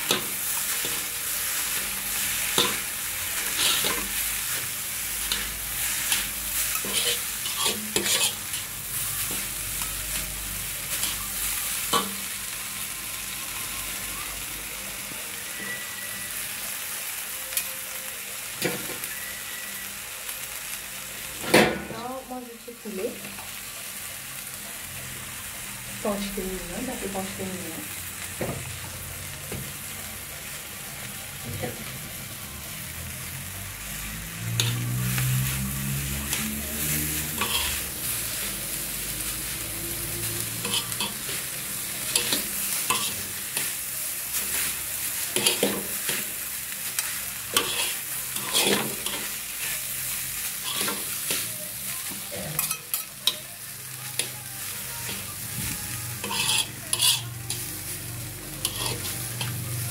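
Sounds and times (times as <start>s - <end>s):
utensils scraping and clacking on wok: 0.0s - 12.4s, 34.4s - 59.9s
noodles sizzling in a wok: 0.0s - 59.9s.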